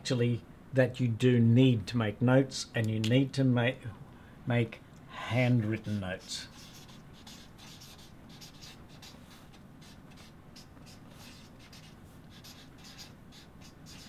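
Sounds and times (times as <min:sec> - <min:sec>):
marker scratching on paper: 0:05.6 - 0:14.0.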